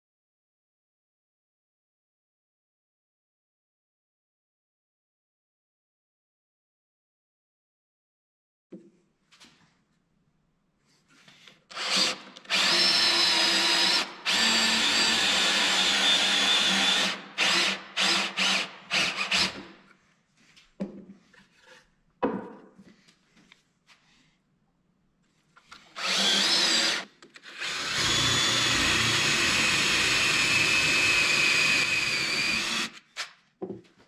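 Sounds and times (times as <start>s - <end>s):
cordless drill boring into wood: 11.7s - 19.8s, 25.8s - 33.3s.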